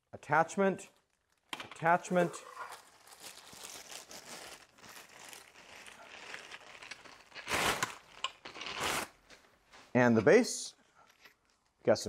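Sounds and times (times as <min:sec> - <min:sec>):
plastic bags crinkling: 0:00.9 - 0:09.8
loud plastic rustles: 0:02.0 - 0:09.4.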